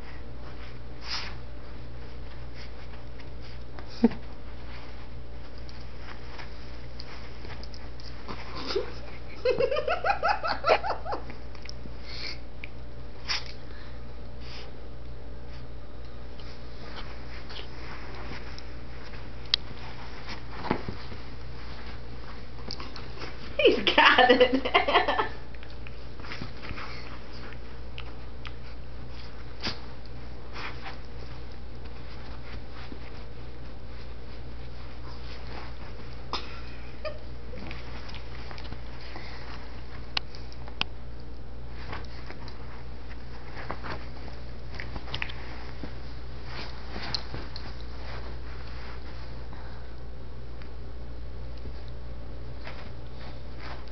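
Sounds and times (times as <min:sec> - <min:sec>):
rustling on fabric: 0:00.0 - 0:11.2, 0:16.4 - 0:40.8, 0:41.4 - 0:49.6, 0:52.5 - 0:53.9
steady low hum: 0:00.0 - 0:53.9.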